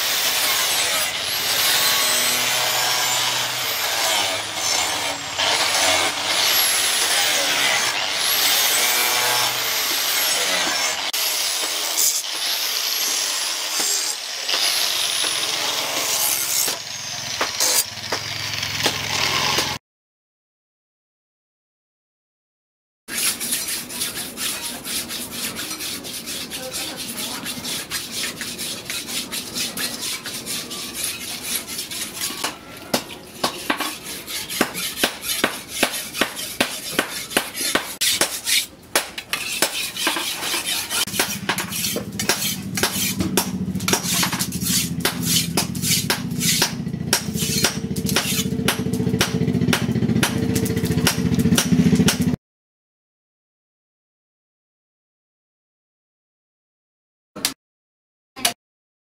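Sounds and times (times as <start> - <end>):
knife scraping on whetstone: 17.6 - 17.9, 23.1 - 32.5, 33.4 - 43.2, 43.8 - 46.7, 47.3 - 48.5.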